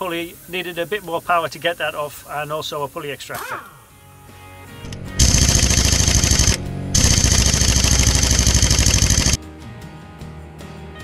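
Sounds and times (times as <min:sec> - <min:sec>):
impact wrench hammering: 0:05.2 - 0:09.4.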